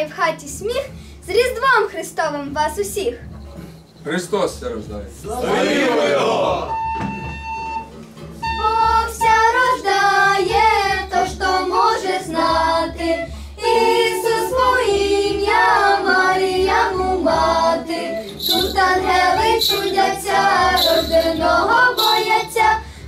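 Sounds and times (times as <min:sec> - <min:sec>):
women and children singing a carol: 0:08.5 - 0:22.9.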